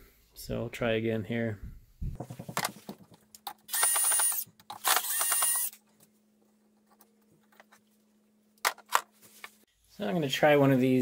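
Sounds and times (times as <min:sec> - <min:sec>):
power driver motor whirring: 0:03.7 - 0:05.8.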